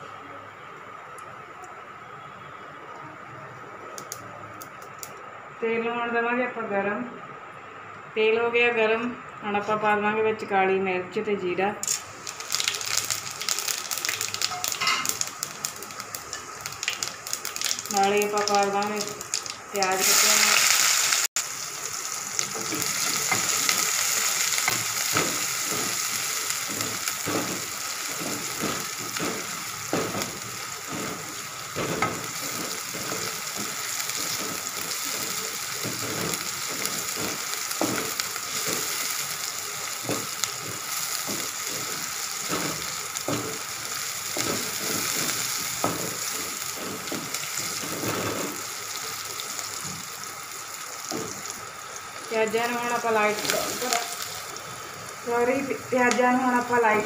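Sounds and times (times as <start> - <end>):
onions sizzling in hot oil: 11.8 - 57.0
spatula scraping and tapping pan: 22.6 - 39.2, 40.0 - 48.6.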